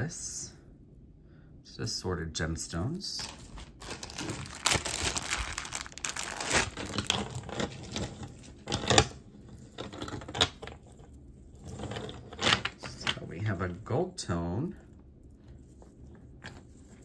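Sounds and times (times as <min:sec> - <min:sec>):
wrapping crinkling and rustling: 0:03.2 - 0:14.1.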